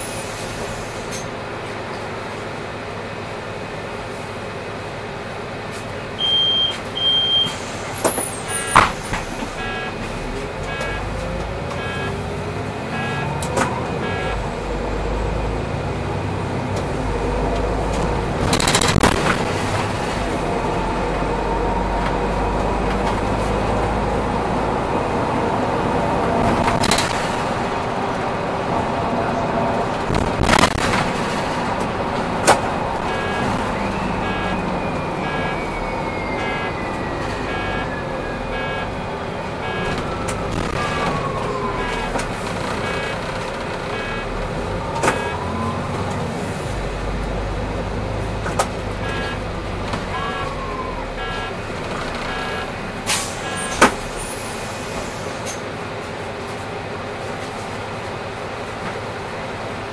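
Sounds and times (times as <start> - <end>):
bus engine accelerating: 0.0 - 59.9
short high beeps: 6.2 - 7.6, 9.6 - 10.0, 10.7 - 11.1, 11.8 - 12.2, 12.9 - 13.4, 14.0 - 14.4, 33.1 - 39.0, 39.6 - 40.0, 42.8 - 43.2, 44.0 - 44.3, 45.1 - 45.4, 49.0 - 49.4, 50.1 - 51.6, 52.2 - 53.8.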